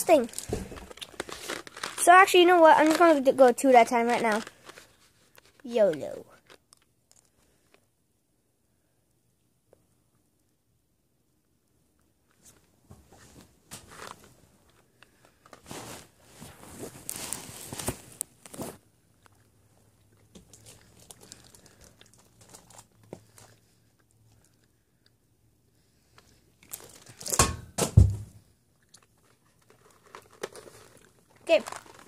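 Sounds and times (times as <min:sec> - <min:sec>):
wrapper crinkling and rustling: 0:00.0 - 0:07.8, 0:13.8 - 0:19.4, 0:20.2 - 0:23.7, 0:26.2 - 0:27.4, 0:28.9 - 0:32.0
chewing candies: 0:00.3 - 0:03.0, 0:19.2 - 0:25.2, 0:28.8 - 0:32.0.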